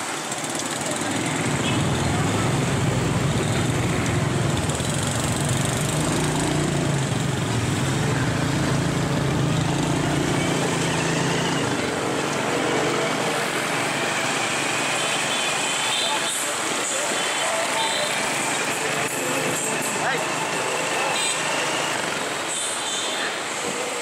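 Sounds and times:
scooter engine running: 0:00.0 - 0:16.0
street traffic of scooters: 0:00.0 - 0:24.0.

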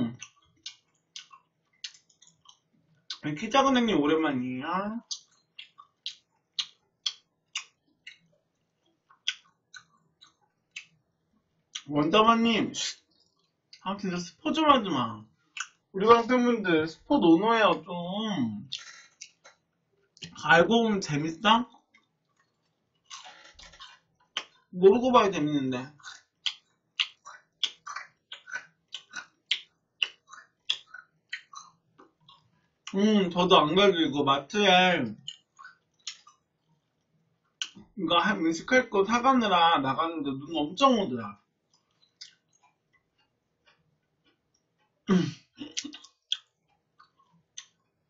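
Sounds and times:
chewing crispy food: 0:00.1 - 0:03.3, 0:05.0 - 0:11.9, 0:12.8 - 0:13.8, 0:18.6 - 0:20.4, 0:21.6 - 0:24.8, 0:25.4 - 0:33.0, 0:35.1 - 0:37.9, 0:41.6 - 0:48.0.

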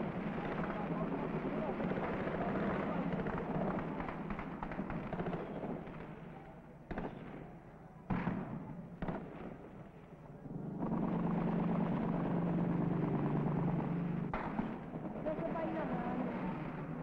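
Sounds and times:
gunshots with echo: 0:00.0 - 0:06.3, 0:06.9 - 0:10.0, 0:10.8 - 0:17.0
loud steady drone: 0:10.4 - 0:17.0.

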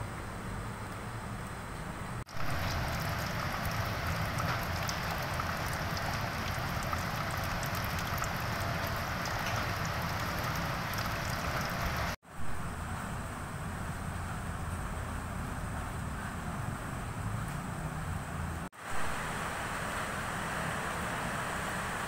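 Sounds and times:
heavy rain on metal grate: 0:02.3 - 0:12.2.

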